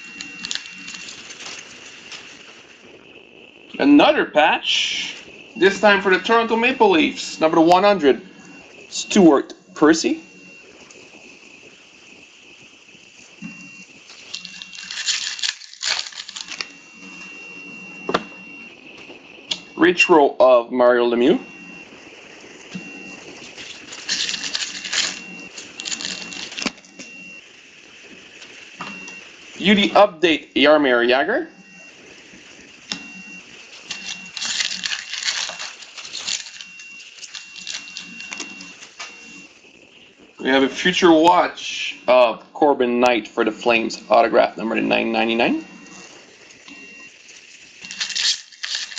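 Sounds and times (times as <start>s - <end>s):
foil wrapper crinkling: 0.0s - 2.6s, 14.0s - 17.4s, 22.7s - 27.2s, 32.9s - 40.3s, 45.0s - 48.9s
trading cards being handled: 14.1s - 16.8s, 22.8s - 27.2s, 33.7s - 39.4s, 47.8s - 48.9s.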